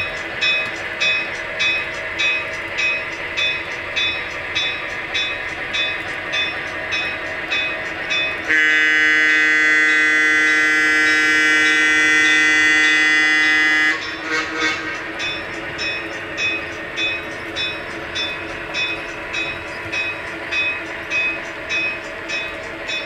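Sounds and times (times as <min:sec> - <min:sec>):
multi-tone air horn: 0:08.5 - 0:15.0.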